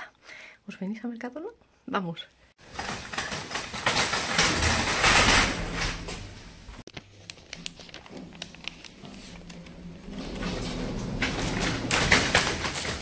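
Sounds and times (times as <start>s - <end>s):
plastic trolley rattling: 2.6s - 6.8s, 7.8s - 13.0s.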